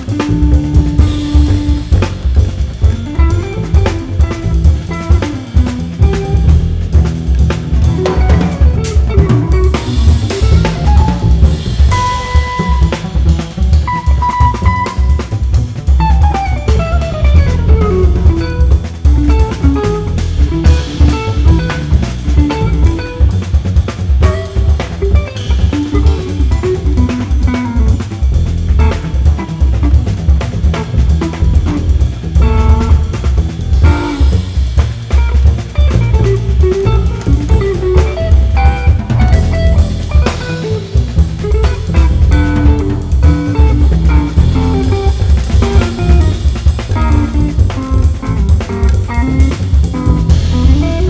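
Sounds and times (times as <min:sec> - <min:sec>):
electric guitar picking notes: 0:00.0 - 0:06.6, 0:07.8 - 0:23.3, 0:24.2 - 0:51.0
drum kit busy beat: 0:00.0 - 0:51.0
upright double bass: 0:00.0 - 0:51.0
electric guitar runs: 0:35.2 - 0:51.0.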